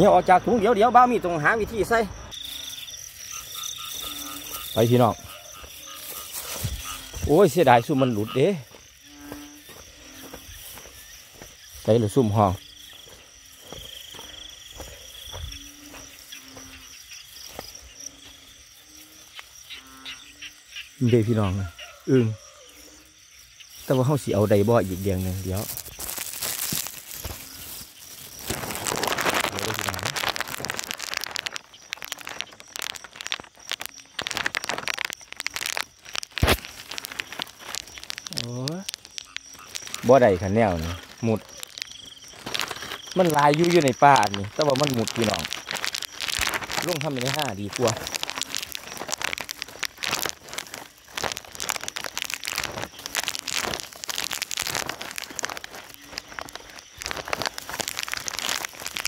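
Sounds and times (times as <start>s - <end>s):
plastic crinkling and rustling: 2.4s - 18.2s, 23.8s - 59.0s
rain hissing: 23.9s - 59.0s.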